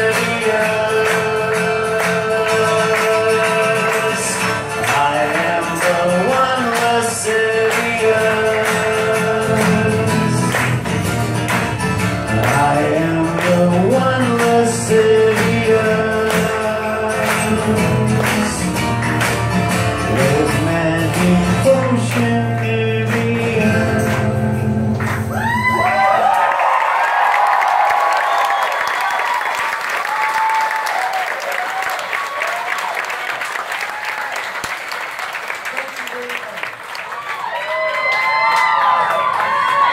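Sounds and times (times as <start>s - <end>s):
man singing: 0.0s - 11.2s, 12.1s - 19.0s, 19.9s - 25.8s
acoustic guitars strummed: 0.0s - 25.8s
crowd cheering: 25.0s - 39.9s.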